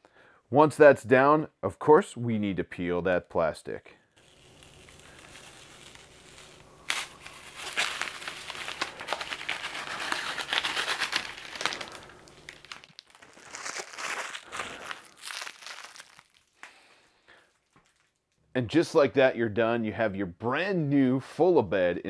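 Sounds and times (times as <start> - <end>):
plastic film peeling crinkling: 4.2 - 18.5.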